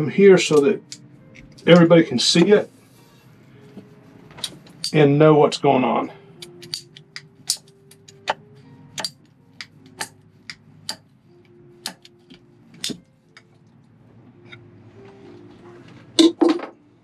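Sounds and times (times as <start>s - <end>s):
ratcheting pipe cutter clicking: 6.4s - 7.7s.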